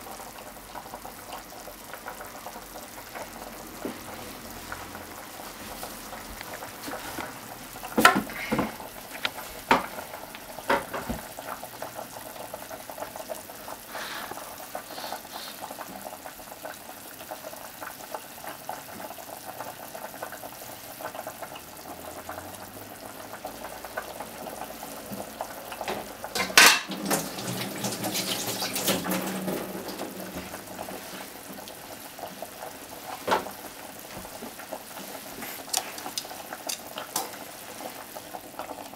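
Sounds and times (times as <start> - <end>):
broth simmering in a pot: 0.0 - 38.9
kitchenware clatter: 10.6 - 11.2, 25.8 - 30.4
kitchenware clicks and knocks: 25.9 - 27.0.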